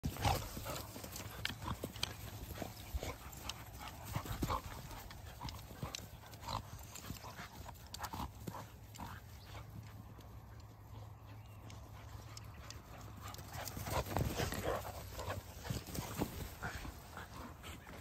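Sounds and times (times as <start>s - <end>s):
paws scuffling on dry ground: 0.0s - 18.0s
dogs vocalizing: 0.1s - 18.0s.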